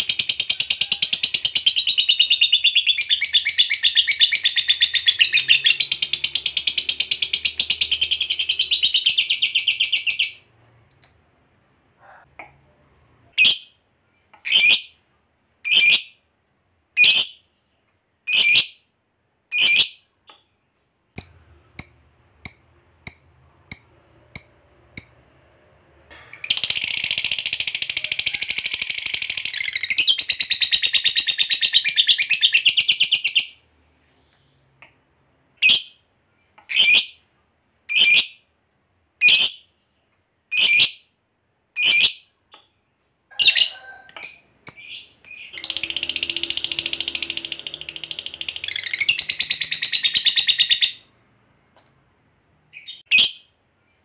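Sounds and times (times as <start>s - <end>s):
lovebird high-pitched calls: 0.0s - 10.5s, 14.4s - 14.9s, 15.6s - 16.2s, 17.0s - 17.4s, 18.3s - 18.8s, 19.5s - 20.0s, 26.4s - 33.6s, 36.7s - 37.2s, 37.9s - 38.4s, 40.5s - 41.0s, 41.8s - 42.2s, 43.3s - 51.1s, 52.7s - 53.5s.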